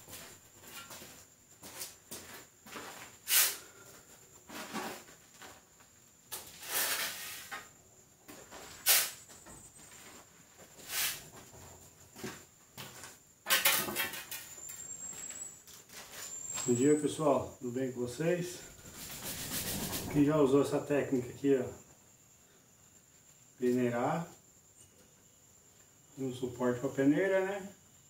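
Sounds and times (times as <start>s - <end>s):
shovel scraping sand on concrete: 3.3s - 3.6s, 6.5s - 7.6s, 8.8s - 9.2s, 10.9s - 11.2s, 18.7s - 20.5s.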